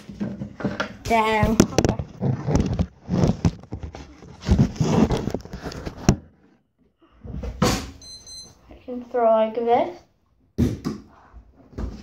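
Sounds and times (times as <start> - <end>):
handling noise on microphone: 0.0 - 6.6.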